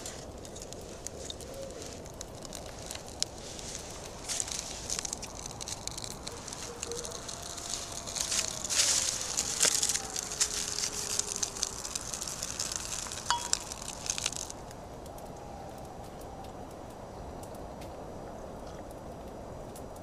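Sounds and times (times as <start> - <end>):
flames hissing rush: 0.0 - 14.8
fire crackling: 0.0 - 20.0.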